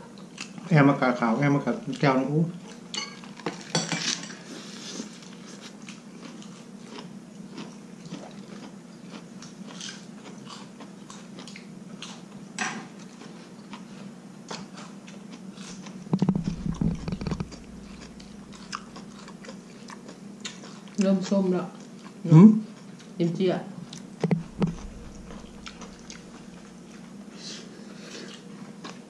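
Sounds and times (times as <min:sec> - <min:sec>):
faint steady hum: 0:00.0 - 0:29.0
chewing lettuce: 0:01.6 - 0:23.2, 0:23.8 - 0:29.0
deep knocking and rumbling: 0:16.1 - 0:18.8, 0:24.3 - 0:26.5.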